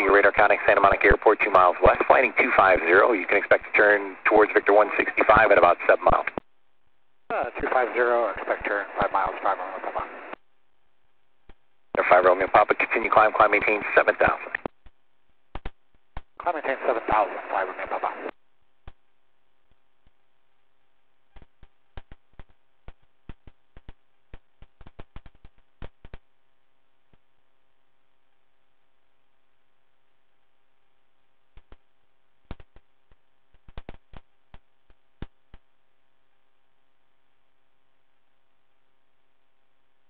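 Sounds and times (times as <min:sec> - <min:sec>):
faint radio hum: 0:00.0 - 0:40.0
sharp clicks: 0:14.4 - 0:16.3.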